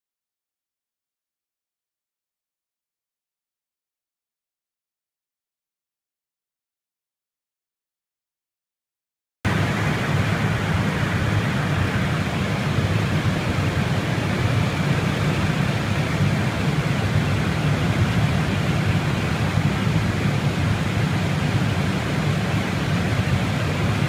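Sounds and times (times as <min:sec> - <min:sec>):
air-conditioning hiss: 0:09.5 - 0:24.0
airflow rush: 0:09.5 - 0:24.0
low hum: 0:09.5 - 0:24.0.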